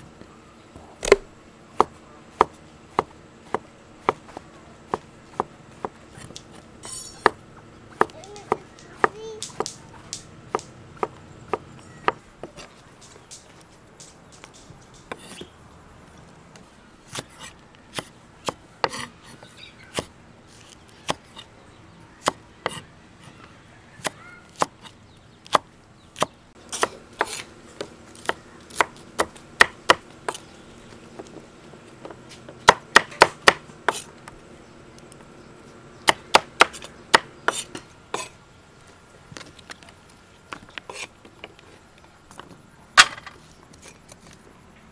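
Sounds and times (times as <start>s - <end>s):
knife chopping on wooden board: 1.0s - 6.4s, 7.2s - 12.7s, 17.1s - 21.2s, 25.4s - 30.5s, 32.0s - 34.1s, 36.0s - 38.3s, 43.0s - 43.4s.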